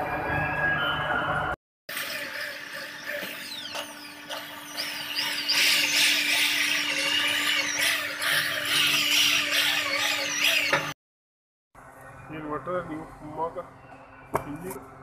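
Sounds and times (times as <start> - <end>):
electric drill boring into metal: 1.9 - 11.0.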